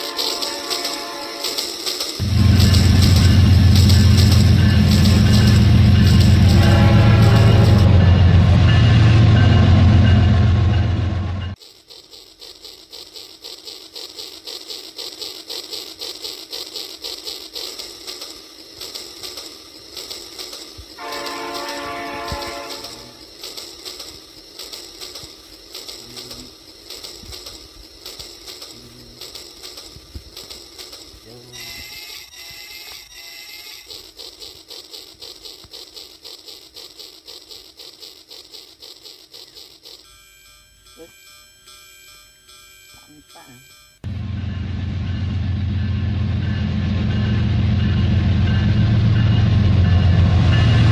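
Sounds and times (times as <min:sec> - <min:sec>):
electronic toy train whistle: 0:00.0 - 0:08.5, 0:20.8 - 0:25.3, 0:30.4 - 0:44.0
toy train clicking on track: 0:00.0 - 0:08.8, 0:11.5 - 0:44.0.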